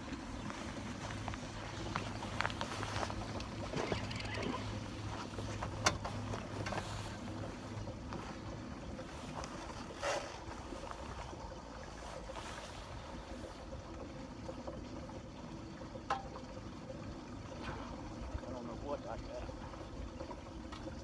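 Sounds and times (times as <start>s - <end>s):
boat engine low rumble: 0.0s - 21.0s
water noise: 0.0s - 21.0s.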